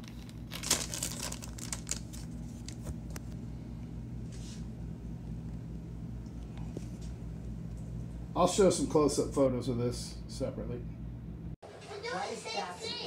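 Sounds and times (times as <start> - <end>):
plastic bag crinkling: 0.0 - 3.1.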